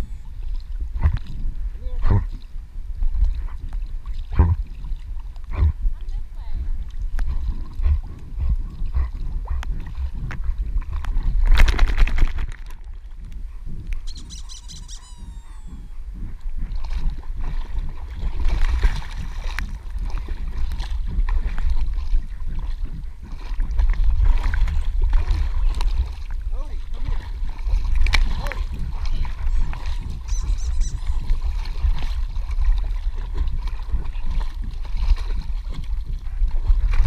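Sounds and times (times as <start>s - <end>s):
dog paddling strokes: 0.0s - 37.0s
low rumble: 0.0s - 37.0s
water sloshing and splashing: 0.0s - 37.0s
high chirp: 14.1s - 15.9s, 30.3s - 31.2s.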